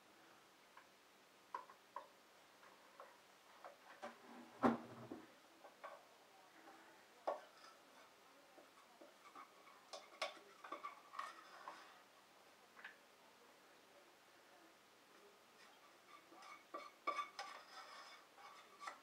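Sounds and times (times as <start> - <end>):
metal utensil tapping a pan: 8.6 - 11.9, 15.6 - 19.0.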